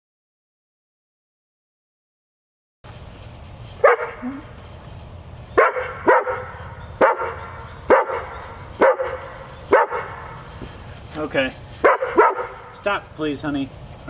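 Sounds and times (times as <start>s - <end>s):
dog barking: 3.8s - 4.3s, 5.6s - 10.4s, 11.8s - 12.7s.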